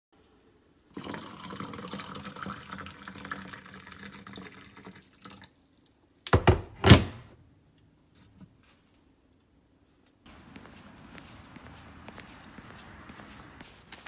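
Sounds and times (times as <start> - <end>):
water pouring into plastic cup: 0.9 - 6.0.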